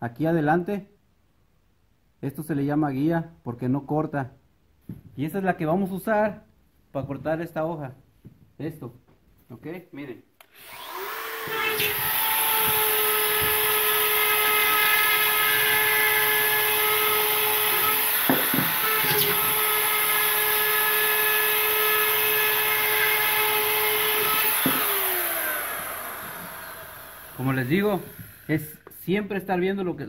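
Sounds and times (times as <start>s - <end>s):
drywall router whining: 10.4s - 28.9s.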